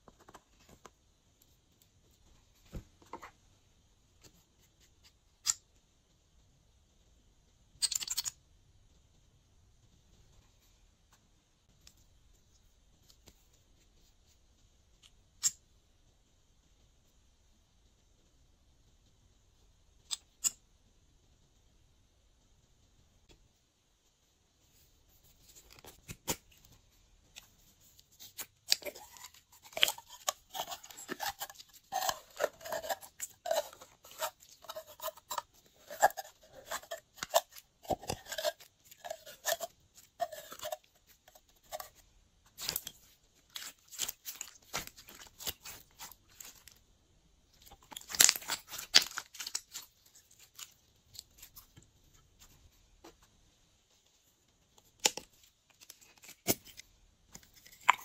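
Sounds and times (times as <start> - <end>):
slime crackling and squelching: 27.8 - 46.9, 47.5 - 52.5.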